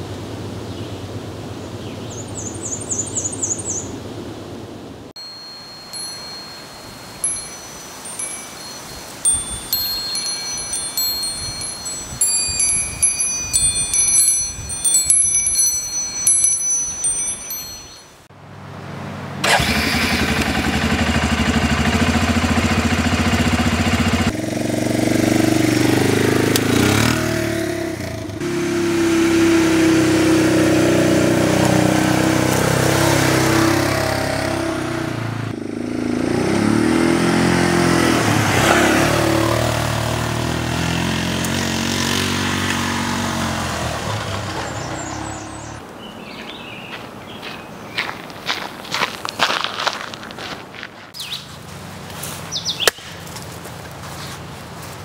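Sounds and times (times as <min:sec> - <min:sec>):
metal wind chimes ringing: 0:05.2 - 0:18.3, 0:37.9 - 0:45.8
atv engine revving: 0:19.4 - 0:45.8.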